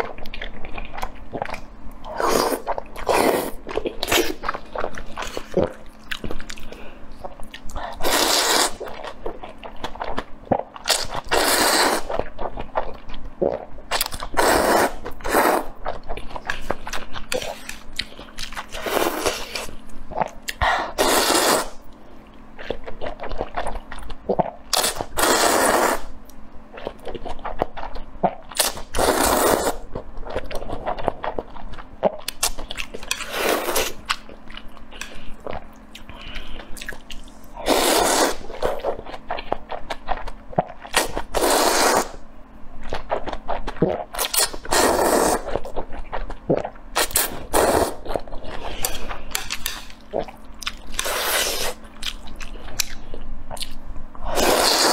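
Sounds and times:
slurping noodles: 8.0s - 8.8s, 10.9s - 12.2s, 14.4s - 15.7s, 21.0s - 21.8s, 24.8s - 26.1s, 28.6s - 29.8s, 33.2s - 34.0s, 37.6s - 39.0s, 41.0s - 42.2s, 43.8s - 45.6s, 46.5s - 50.3s, 54.2s - 54.9s.

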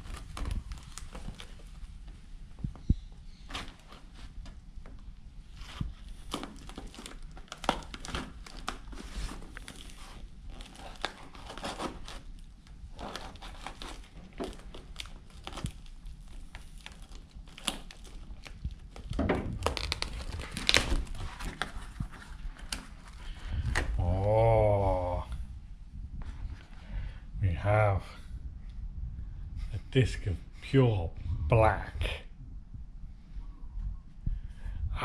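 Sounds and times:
cardboard parcel crinkling and tearing: 0.0s - 2.0s, 3.3s - 25.2s.

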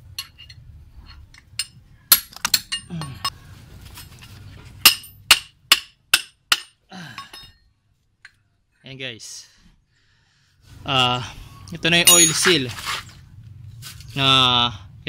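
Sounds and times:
metal clinks: 0.0s - 3.3s, 12.0s - 12.6s
ringing metal hammer hits: 12.0s - 12.5s.

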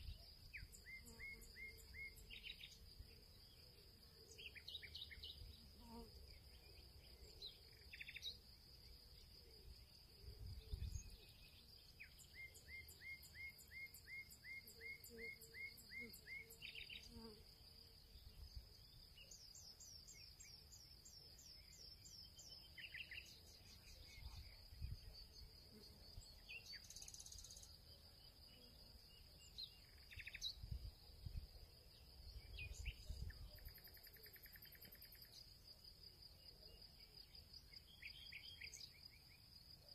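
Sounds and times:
bird chirping: 0.0s - 3.6s, 4.2s - 8.4s, 18.4s - 35.6s, 36.4s - 39.9s
high insect trill: 7.6s - 39.9s.

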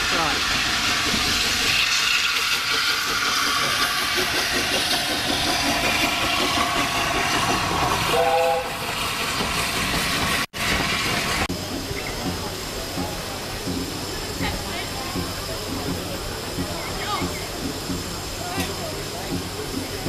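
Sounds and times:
steam hissing: 0.0s - 20.0s
short train whistle toot: 8.1s - 8.8s.

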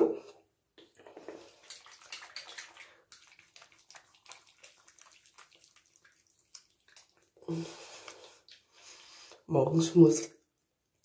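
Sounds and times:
hands splashing water on face: 1.6s - 8.7s
wet squishing of foaming cleanser: 1.8s - 8.8s.

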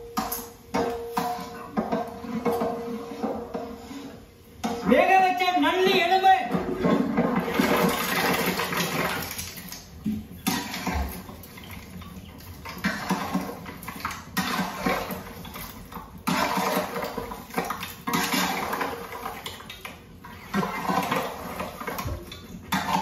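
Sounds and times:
spatula scraping a cooking pot: 1.1s - 4.9s, 10.4s - 23.0s.

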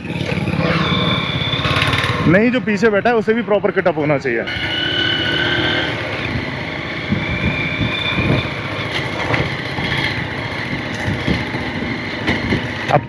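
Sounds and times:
motorbike engine running: 0.0s - 12.8s
knocks and rattles from bumps: 8.2s - 13.0s.

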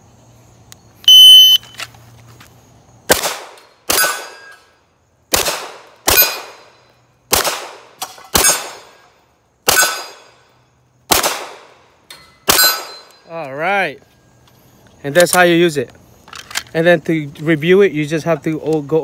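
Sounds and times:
shot timer beep: 1.1s - 1.7s
handgun shots: 5.3s - 6.7s, 9.7s - 10.3s.

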